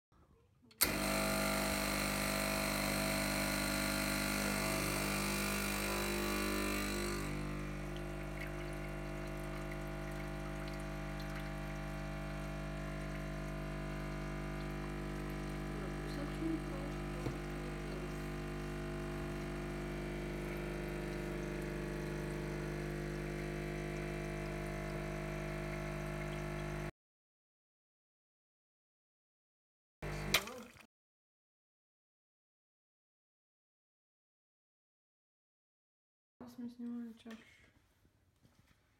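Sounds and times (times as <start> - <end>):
espresso machine pump buzzing: 0.8 - 26.9, 30.0 - 30.4.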